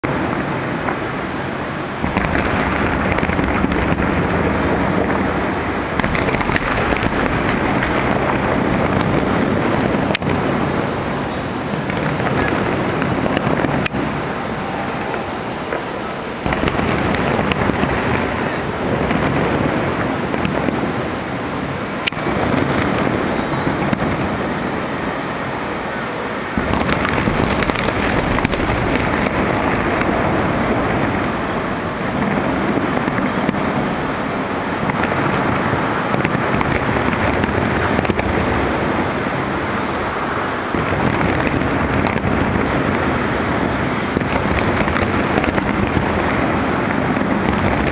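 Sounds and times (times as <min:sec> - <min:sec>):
fireworks going off: 0:00.0 - 0:47.9
large crowd noise: 0:00.0 - 0:47.9
sharp firework cracks: 0:02.0 - 0:21.3, 0:22.0 - 0:25.0, 0:25.9 - 0:47.9.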